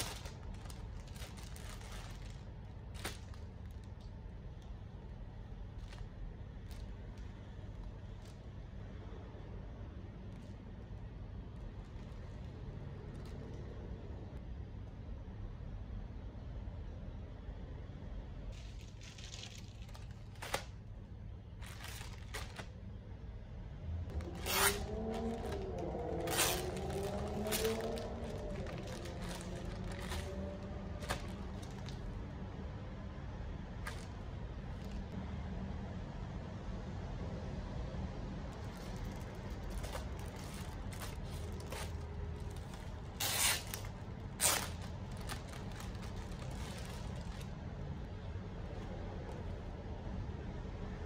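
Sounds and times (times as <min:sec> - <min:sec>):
plastic bag crinkling: 0:00.0 - 0:04.3, 0:05.8 - 0:08.4, 0:18.6 - 0:20.9, 0:21.5 - 0:22.8, 0:24.1 - 0:32.3, 0:33.8 - 0:35.1, 0:38.6 - 0:47.7.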